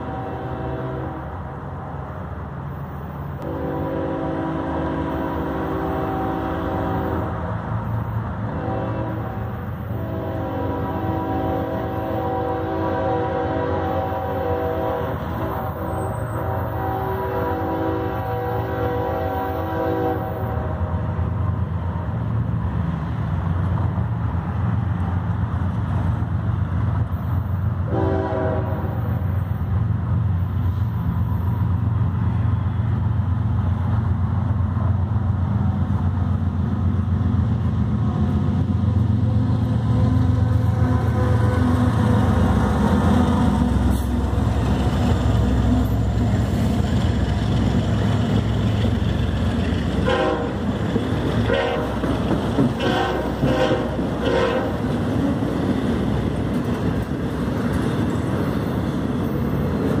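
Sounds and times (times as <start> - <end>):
train horn: 0.0 - 1.5, 3.4 - 7.5, 8.4 - 21.2, 27.9 - 29.3, 39.2 - 44.6, 50.0 - 50.7, 51.4 - 55.4
wheel-on-rail noise: 28.7 - 60.0
train cars clattering: 38.4 - 60.0.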